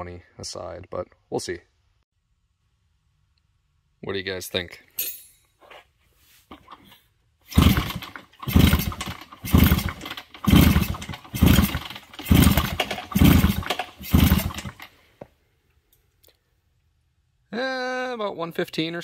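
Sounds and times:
motorcycle engine kicked over: 6.5 - 15.0.

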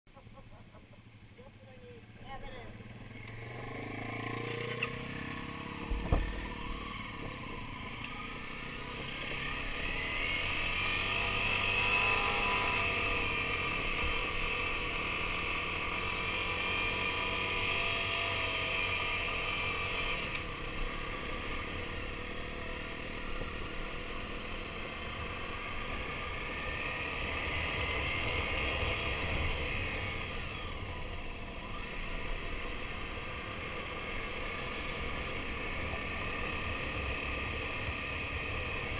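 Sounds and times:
motorcycle engine accelerating: 2.0 - 38.9
sharp thump: 5.8 - 6.4.

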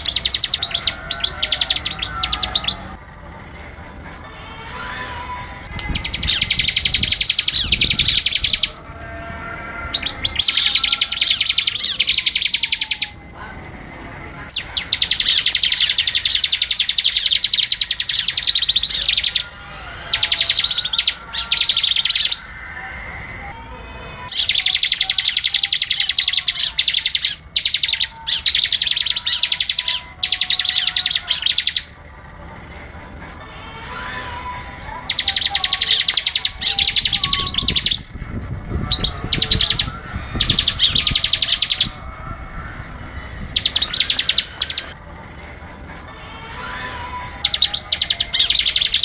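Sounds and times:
bird singing rapid high notes: 0.0 - 3.0, 5.4 - 8.9, 9.8 - 13.2, 14.5 - 22.6, 24.2 - 32.0, 34.1 - 42.1, 43.4 - 45.0, 46.8 - 49.0.

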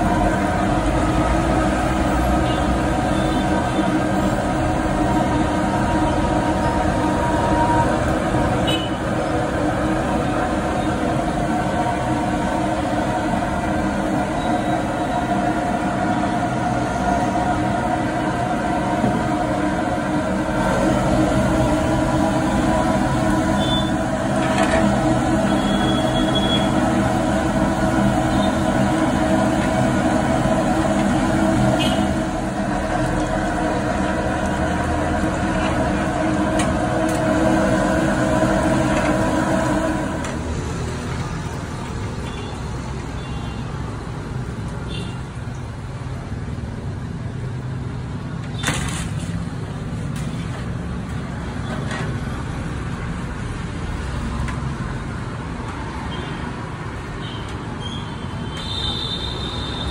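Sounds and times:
vehicle engine humming: 0.0 - 43.2.

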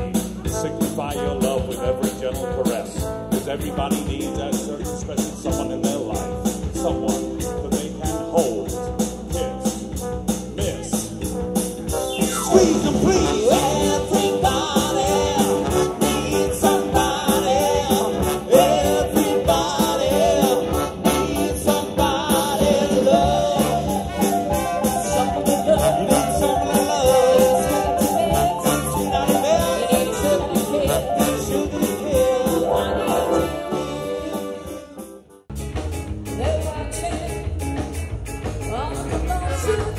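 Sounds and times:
trumpets and trombone: 0.0 - 35.4
steady drumbeat: 0.0 - 38.7
person singing: 12.2 - 35.0.

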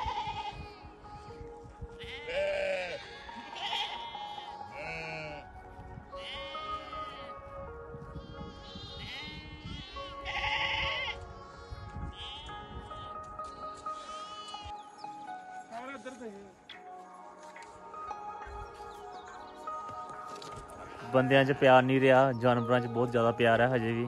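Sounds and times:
sheep and goats bleating: 0.0 - 1.1, 1.9 - 14.7, 20.0 - 22.2
background music with held notes: 0.0 - 24.0.

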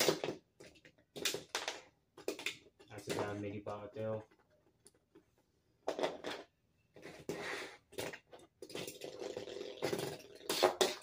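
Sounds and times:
plastic clattering and rattling: 0.1 - 6.6.

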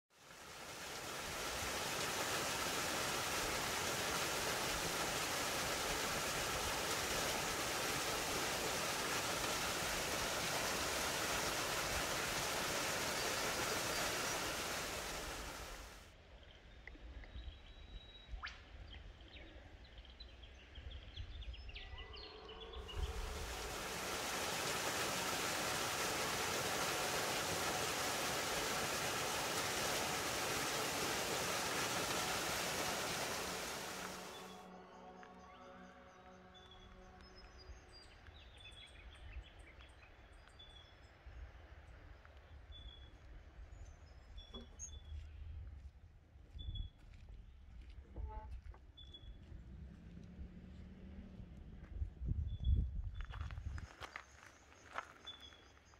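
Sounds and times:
water rushing in creek: 0.0 - 16.1, 22.7 - 34.7.

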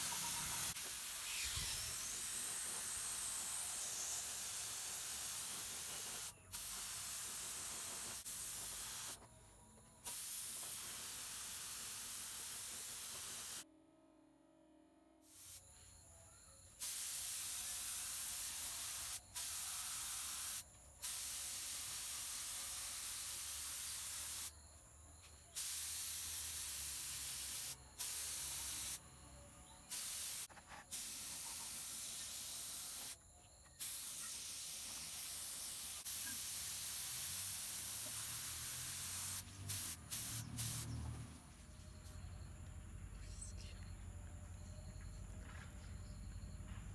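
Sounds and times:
spray paint hissing: 0.0 - 9.2, 10.0 - 13.6, 15.2 - 15.7, 16.8 - 24.5, 25.5 - 29.0, 29.8 - 33.2, 33.8 - 41.0.

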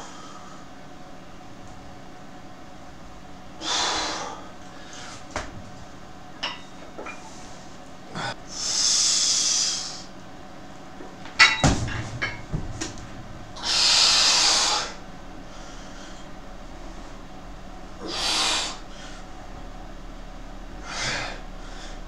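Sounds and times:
dumbbells clinking and knocking: 11.4 - 12.7
forceful hissing exhalations: 13.6 - 15.0.

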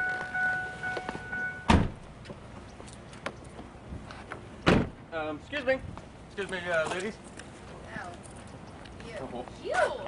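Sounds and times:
steady electronic car tone: 0.0 - 1.8
car door slamming: 1.1 - 2.0, 4.6 - 5.0.

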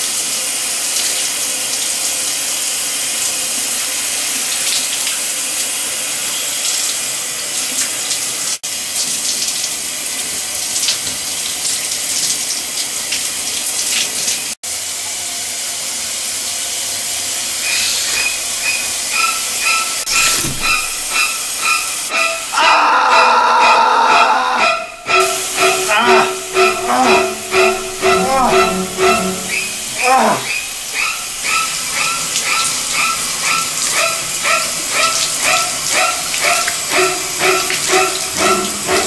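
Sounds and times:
shower spray running: 0.0 - 22.6, 24.1 - 39.0
pulsing high tone: 18.3 - 31.3.

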